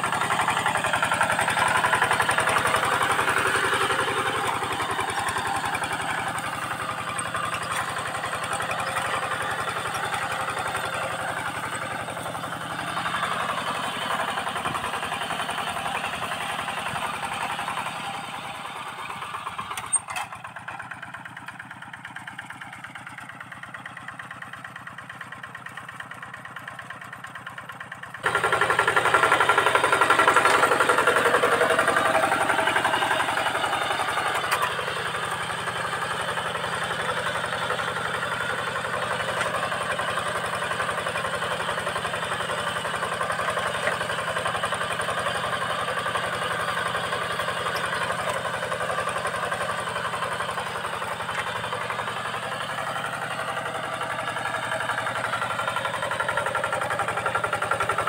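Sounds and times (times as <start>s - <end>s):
diesel hand tractor chugging: 0.0s - 58.0s.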